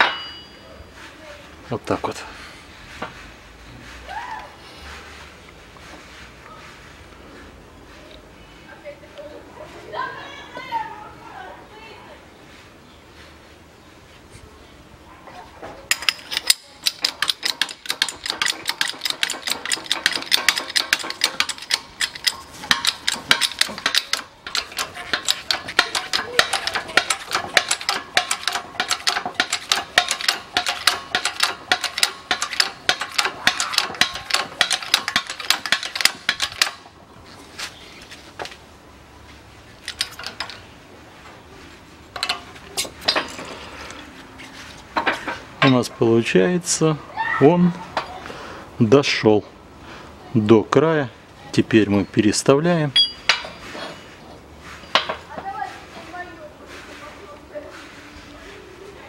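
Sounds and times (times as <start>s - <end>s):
thin ringing tone: 0.0s - 1.0s, 52.9s - 53.6s.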